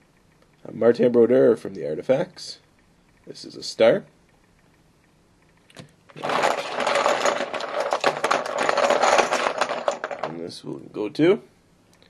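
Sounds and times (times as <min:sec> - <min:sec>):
dice rattling in plastic bowl: 0:06.1 - 0:10.5.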